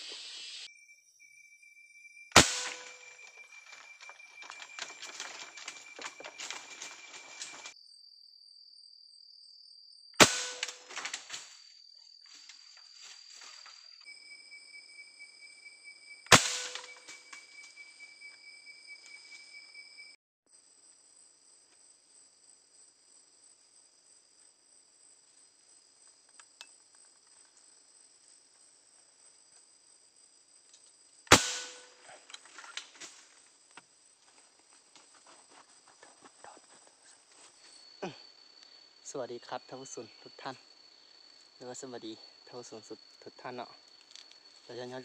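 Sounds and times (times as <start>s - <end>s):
insects trilling: 0.0s - 45.0s
air rifle shots: 2.4s - 3.1s, 10.2s - 11.0s, 16.3s - 17.0s, 31.3s - 32.0s.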